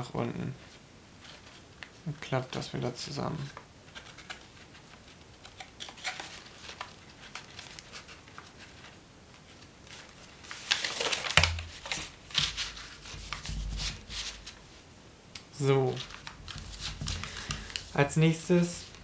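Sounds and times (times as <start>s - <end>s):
paper crinkling and rustling: 3.4s - 14.6s, 15.9s - 19.0s.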